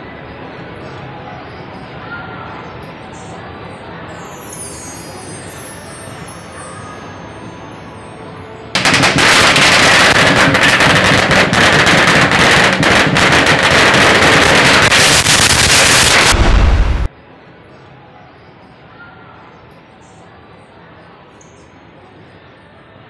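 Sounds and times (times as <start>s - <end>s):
firecrackers crackling: 8.8s - 17.1s.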